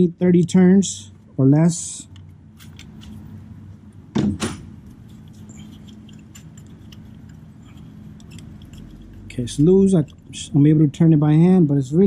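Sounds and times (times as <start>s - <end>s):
low steady hum: 0.0s - 12.0s
ratchet wrench clicking: 5.7s - 10.5s.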